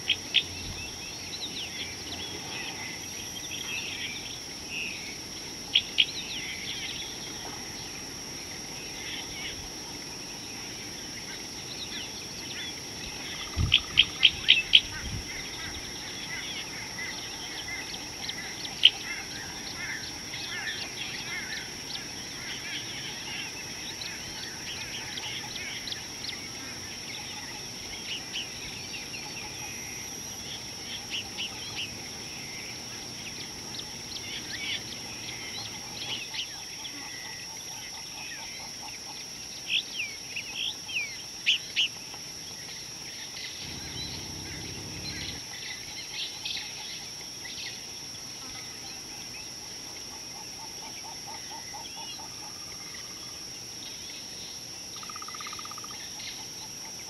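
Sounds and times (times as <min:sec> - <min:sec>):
high-pitched insect drone: 0:07.8 - 0:57.0
birds chirping: 0:43.4 - 0:45.8
low rumble: 0:43.7 - 0:45.4.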